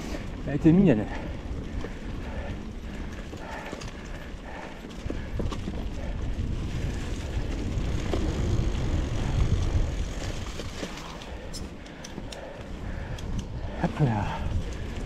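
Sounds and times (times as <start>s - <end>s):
bike knocking and rattling: 0.0s - 15.0s
low rumble: 5.2s - 11.5s.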